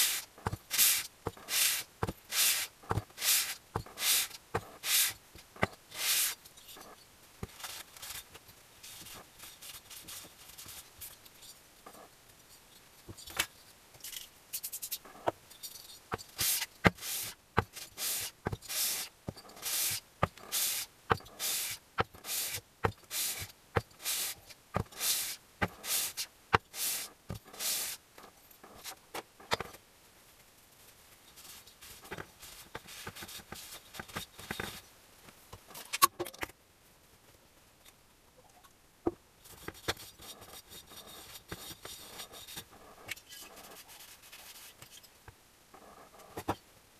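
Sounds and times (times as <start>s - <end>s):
metal cylinder rasping on abrasive paper: 0.0s - 5.2s, 5.9s - 6.4s, 16.2s - 28.0s.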